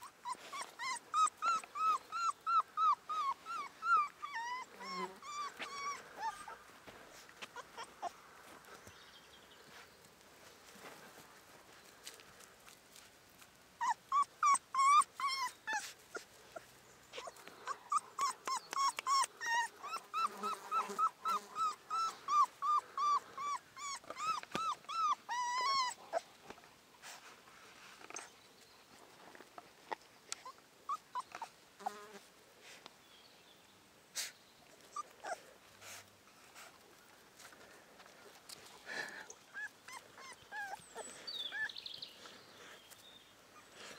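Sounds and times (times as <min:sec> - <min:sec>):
puppy whimpers: 0:00.0 - 0:06.6, 0:07.4 - 0:08.2, 0:13.8 - 0:26.3, 0:34.8 - 0:36.0, 0:38.9 - 0:41.8
puppy whining: 0:00.0 - 0:08.2, 0:13.8 - 0:26.3, 0:30.4 - 0:32.2, 0:34.8 - 0:36.8, 0:38.6 - 0:43.9.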